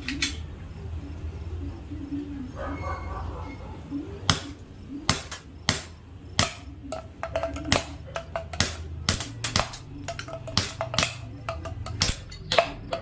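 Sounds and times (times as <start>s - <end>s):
pellets hitting plastic bottles: 4.3s - 13.0s.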